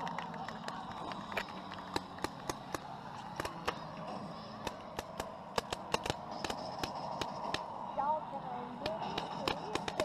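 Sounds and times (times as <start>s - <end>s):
steady background hum: 0.0s - 10.0s.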